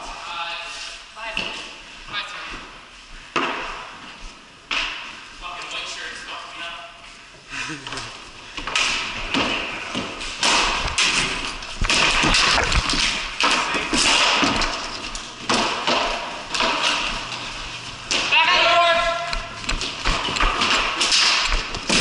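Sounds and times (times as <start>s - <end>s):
hockey sticks clacking on concrete: 8.6s - 22.0s.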